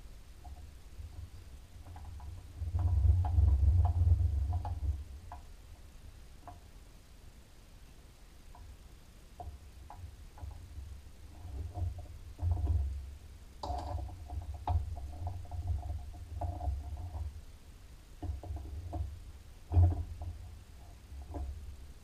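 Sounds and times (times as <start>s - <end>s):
metal knocks and scraping: 18.2s - 21.8s.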